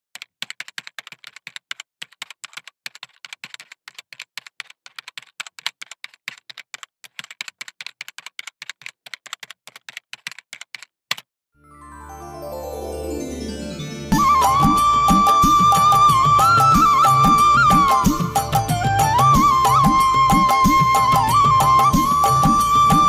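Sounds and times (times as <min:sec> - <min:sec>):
keyboard typing clicks: 0:00.2 - 0:11.3
music: 0:11.6 - 0:23.0.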